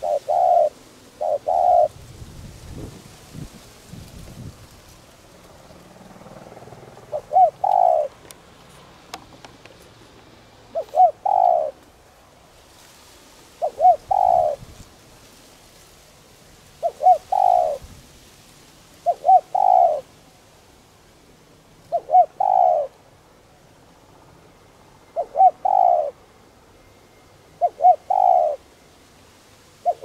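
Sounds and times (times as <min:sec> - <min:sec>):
dove cooing: 0:00.0 - 0:02.1, 0:06.4 - 0:08.3, 0:10.7 - 0:11.8, 0:13.6 - 0:14.7, 0:16.7 - 0:17.9, 0:19.0 - 0:20.1, 0:21.8 - 0:23.0, 0:25.0 - 0:26.3, 0:27.6 - 0:28.8, 0:29.7 - 0:30.0.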